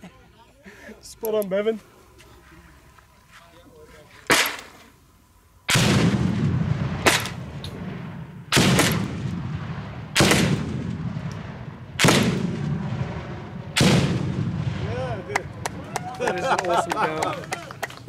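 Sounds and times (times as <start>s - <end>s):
grenade launcher firing: 5.7s - 14.8s
grenades exploding: 5.7s - 15.3s.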